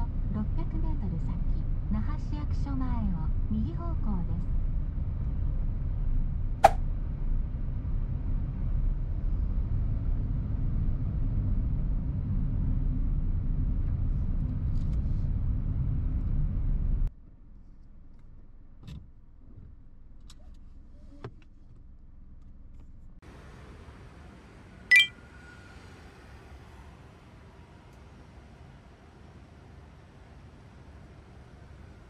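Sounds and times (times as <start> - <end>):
low outdoor hum: 0.0 - 32.0
road and engine rumble in car: 0.0 - 32.0.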